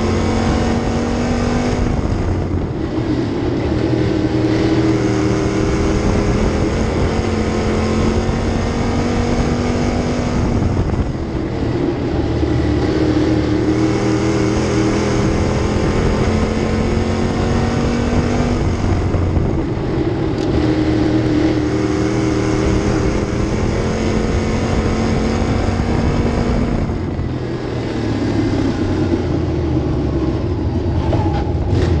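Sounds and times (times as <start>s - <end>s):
race car engine: 0.0s - 32.0s.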